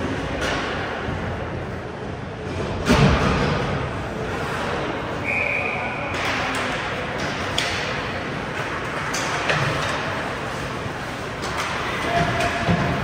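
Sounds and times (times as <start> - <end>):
hockey sticks and puck clacking: 0.0 - 1.7, 2.5 - 13.0
skates scraping ice: 4.0 - 5.2, 6.1 - 13.0.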